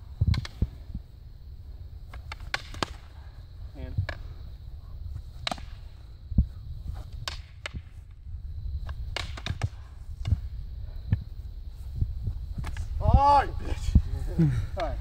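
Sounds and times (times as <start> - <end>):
fighting sticks clacking: 5.4 - 5.8, 8.9 - 10.4.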